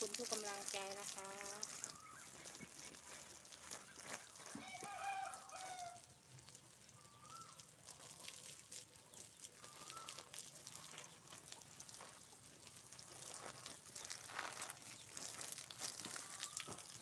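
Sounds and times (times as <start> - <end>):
faint ticks and rustling: 0.0 - 17.0
faint animal calls: 9.6 - 11.0.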